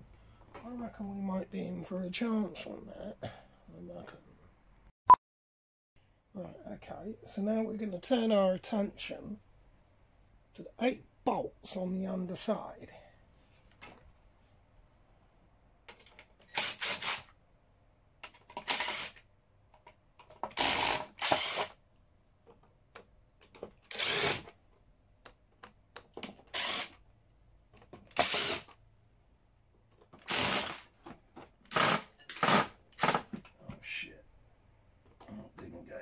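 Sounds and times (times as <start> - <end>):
electric screwdriver running: 16.4 - 17.3, 18.6 - 19.2, 20.5 - 21.8, 23.9 - 24.5, 26.5 - 27.0, 28.1 - 28.7, 30.2 - 30.9, 31.7 - 33.2.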